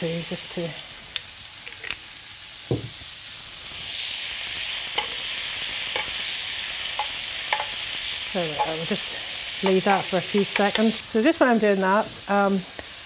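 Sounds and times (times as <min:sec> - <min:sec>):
bacon sizzling in a frying pan: 0:00.0 - 0:13.0
dull knock: 0:02.7 - 0:02.9
metal spoon scraping a pan: 0:04.8 - 0:11.0.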